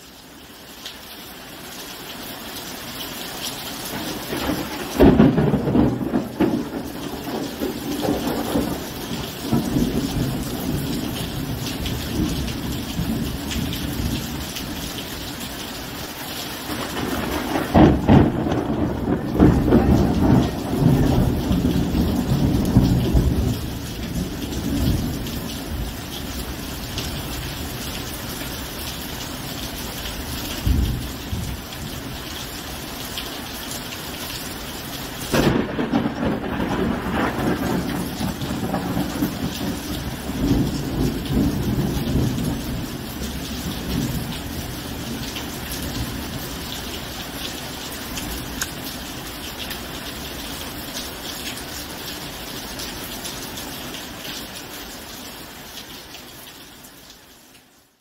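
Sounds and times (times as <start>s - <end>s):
steady rain: 0.0s - 58.0s
thunder claps and rumbling: 3.9s - 14.8s, 16.7s - 27.7s, 30.3s - 32.0s, 35.3s - 46.7s.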